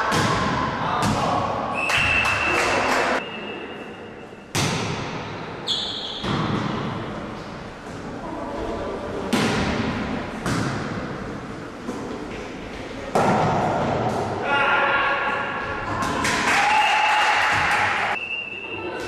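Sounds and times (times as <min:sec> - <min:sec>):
volleyball slaps echoing: 0:00.0 - 0:03.2, 0:04.5 - 0:05.6, 0:06.2 - 0:07.0, 0:09.3 - 0:11.2, 0:13.1 - 0:14.4, 0:15.8 - 0:16.7, 0:17.4 - 0:18.1.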